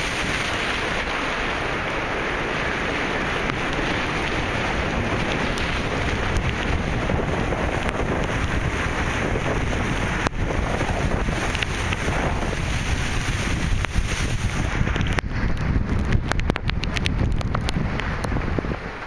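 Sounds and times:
rain on standing water: 0.0 - 19.0
wind buffeting microphone: 0.0 - 19.0.

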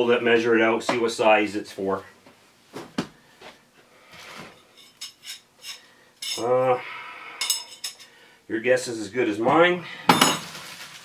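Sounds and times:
metal rings clinking: 4.7 - 6.4, 7.4 - 8.1
person humming: 6.4 - 7.2
packaging rustling: 10.4 - 11.0.

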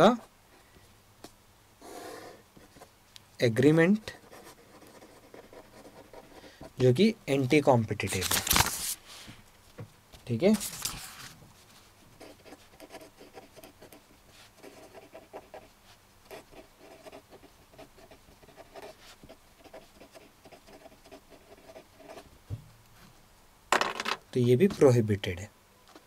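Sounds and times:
pen scratching on paper: 4.2 - 6.5, 12.2 - 15.7, 16.3 - 22.3.

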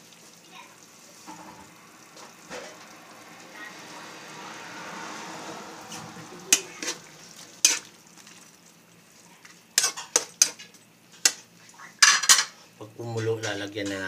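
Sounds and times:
soft sizzle from pan: 0.0 - 14.0.

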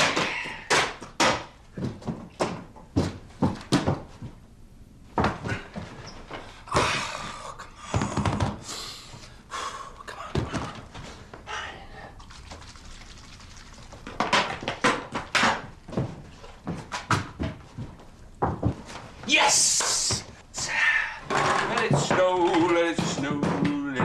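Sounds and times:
knocks thuds and clicks: 21.3 - 24.0.

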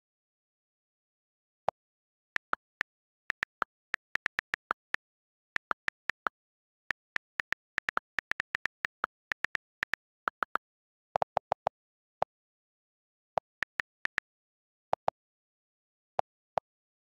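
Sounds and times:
on-screen keyboard clicks: 2.4 - 10.6, 13.4 - 14.3.

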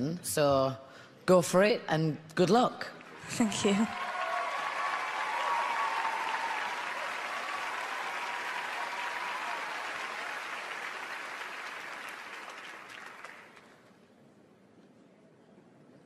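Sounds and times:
large audience applauding: 3.0 - 13.9.

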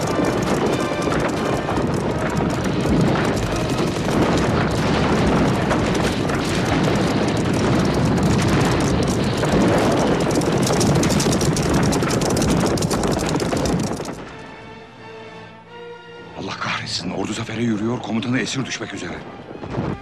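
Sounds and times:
horses galloping: 0.0 - 14.6.

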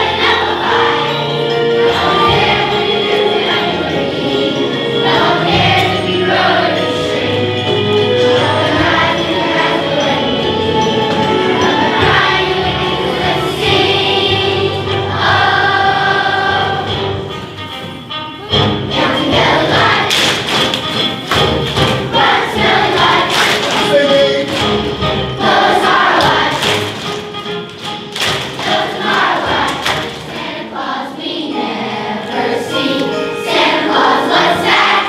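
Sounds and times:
children's chorus singing: 0.0 - 17.5, 18.4 - 35.0
instrumental accompaniment: 0.0 - 35.0.

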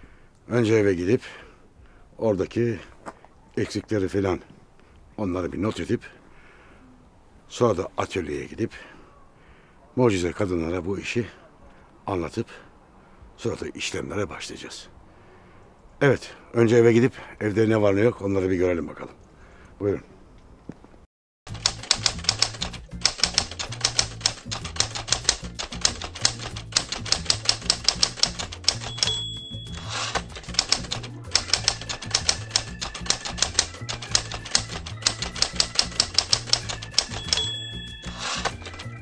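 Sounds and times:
typewriter key clacking music: 21.5 - 39.0
typewriter bell ding: 21.6 - 39.0.

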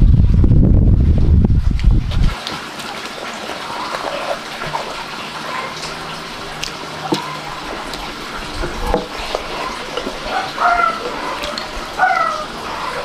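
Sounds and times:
wet chewing: 3.5 - 13.0.

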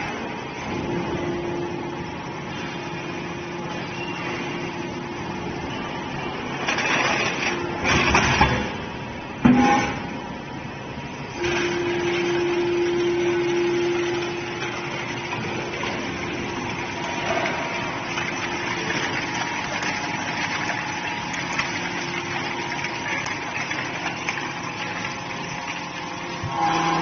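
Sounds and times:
hydraulic whine: 11.2 - 21.2, 23.9 - 27.0.

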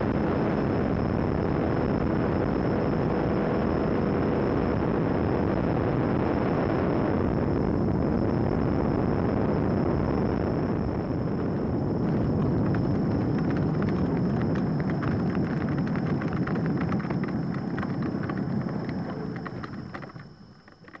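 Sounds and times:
aircraft engine: 0.0 - 21.0
wind noise: 0.0 - 21.0.

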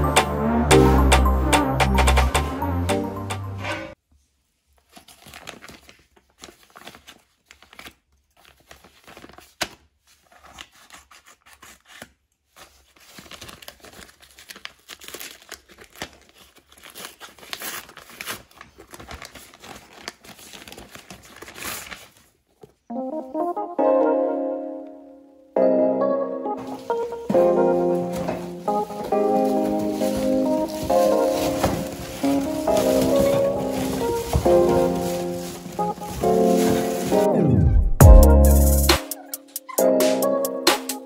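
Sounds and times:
paper tearing and rustling: 4.7 - 22.8, 26.6 - 37.3.

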